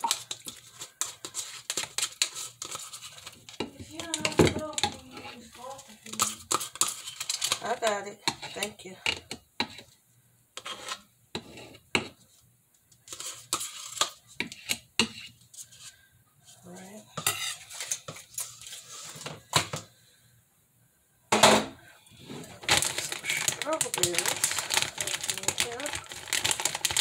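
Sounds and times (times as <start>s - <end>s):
spoon scraping in plastic cups: 0.0s - 10.0s, 10.6s - 12.4s, 13.0s - 19.9s, 22.1s - 27.0s
dishes clattering: 21.3s - 21.8s.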